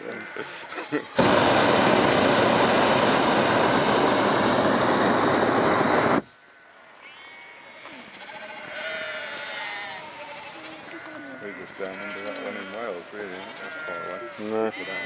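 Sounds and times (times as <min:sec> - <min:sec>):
propane burner roaring: 0:01.2 - 0:06.2
sheep bleating faintly: 0:07.1 - 0:15.0.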